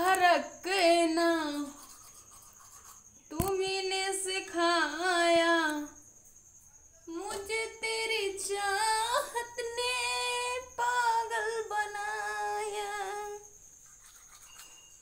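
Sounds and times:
woman singing unaccompanied: 0.0s - 1.8s, 3.3s - 6.0s, 7.1s - 13.6s.

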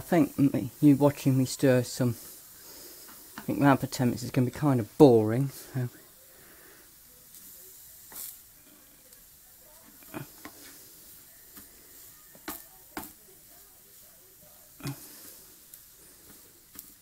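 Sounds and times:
mince frying in a pan: 0.0s - 17.0s
spatula scraping and knocking pan: 9.8s - 13.2s.

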